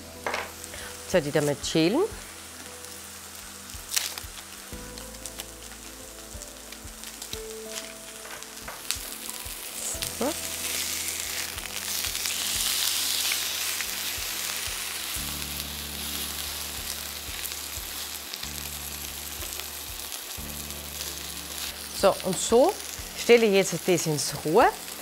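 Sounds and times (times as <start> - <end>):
steaks sizzling in a frying pan: 0.1 - 25.0.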